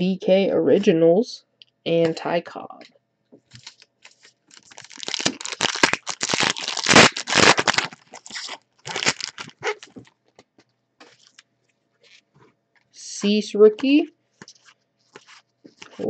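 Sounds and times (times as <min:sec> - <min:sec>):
wrappers being torn and crinkled: 0:03.6 - 0:10.0, 0:15.1 - 0:16.0.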